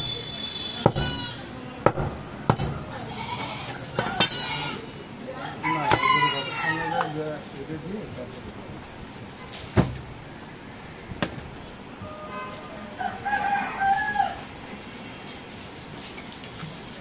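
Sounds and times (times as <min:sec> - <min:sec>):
rooster crowing: 0:05.4 - 0:07.2, 0:12.3 - 0:14.5.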